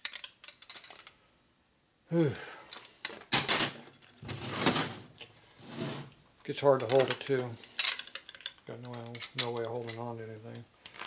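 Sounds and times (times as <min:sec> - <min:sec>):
hand tools clicking and rattling: 0:00.0 - 0:01.2, 0:06.8 - 0:10.6.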